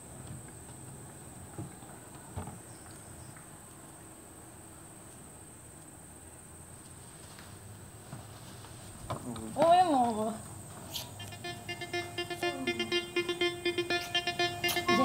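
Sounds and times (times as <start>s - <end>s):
high-pitched whine: 11.0s - 15.0s
low hum: 11.2s - 15.0s.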